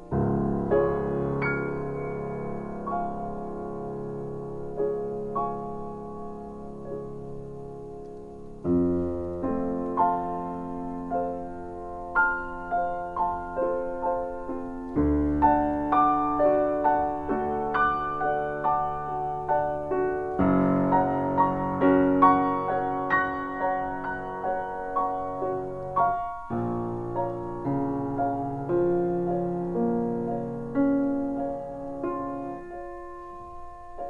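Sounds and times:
solo piano: 0.0s - 34.0s.

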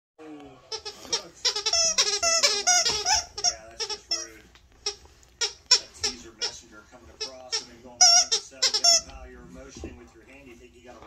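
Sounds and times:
squeaky toy squeaking: 0.7s - 6.6s, 7.2s - 9.2s.

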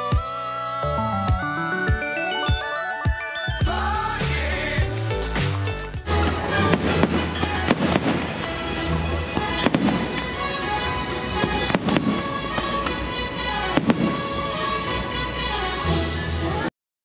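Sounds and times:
steady music: 0.0s - 16.0s
fireworks bangs: 6.6s - 13.1s, 13.7s - 14.4s.

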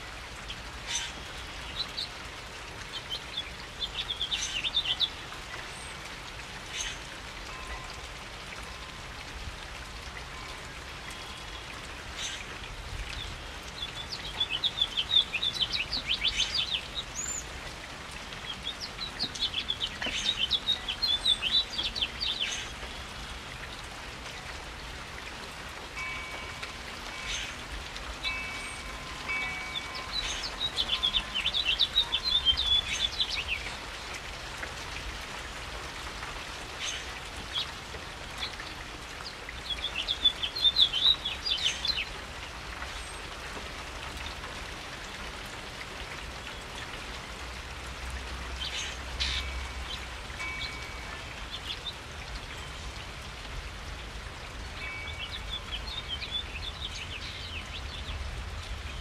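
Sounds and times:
steady rain: 0.0s - 59.0s
songbird chirping: 18.4s - 23.8s, 26.0s - 34.1s, 38.4s - 42.2s, 54.6s - 59.0s.

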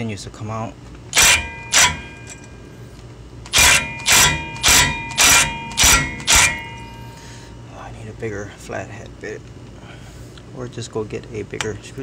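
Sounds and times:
impact gun hammering: 1.1s - 2.5s, 3.5s - 7.2s.

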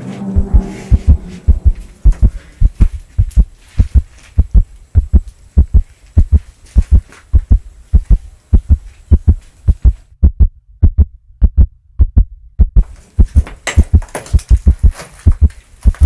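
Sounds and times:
heartbeat thumps: 0.3s - 16.0s.

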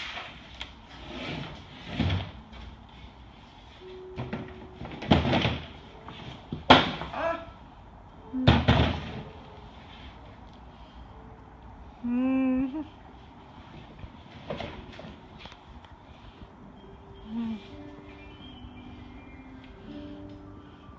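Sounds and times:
canvas scraping: 0.0s - 2.4s.

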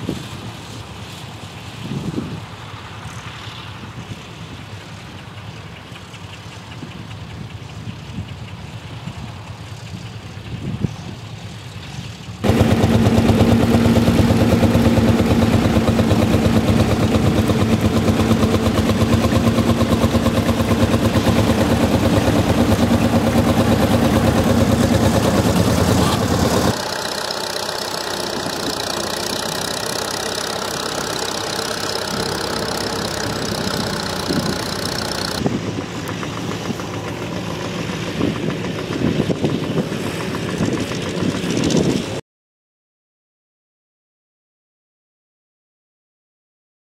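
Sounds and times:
tractor engine running: 11.2s - 42.0s
field noise: 12.4s - 41.7s.

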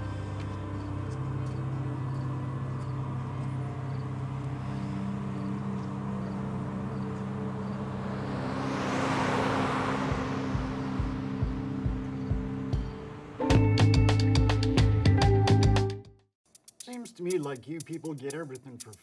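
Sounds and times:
film score sustained chords: 0.0s - 8.8s, 9.8s - 13.8s
low pulsing beat: 10.1s - 15.9s, 16.6s - 19.0s.

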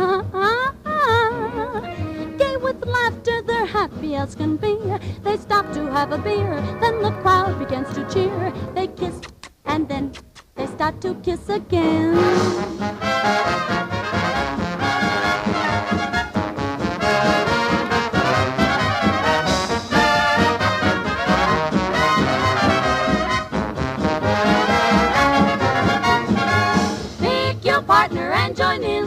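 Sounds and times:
band with brass playing: 5.6s - 8.8s, 12.1s - 27.6s.

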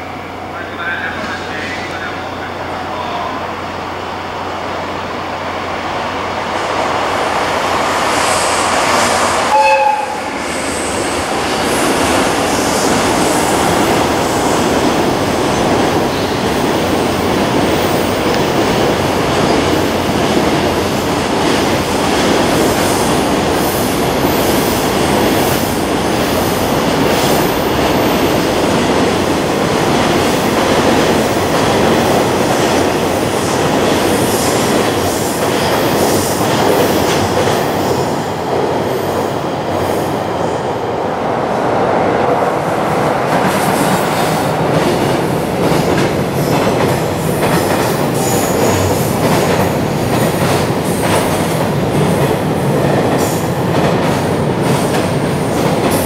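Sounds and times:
freight train rumbling past: 0.0s - 56.0s
train horn blast: 9.5s - 10.3s
train wheel clatter: 43.3s - 56.0s.

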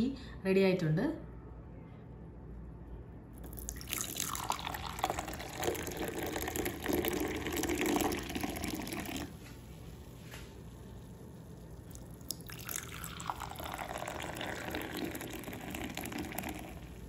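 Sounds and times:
tea pouring into a cup: 3.4s - 9.4s, 11.6s - 17.0s.

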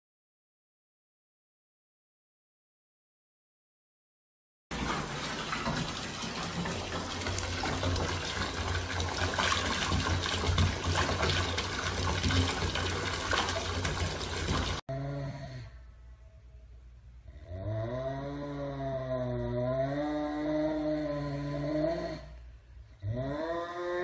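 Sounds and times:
water running: 4.7s - 14.8s.

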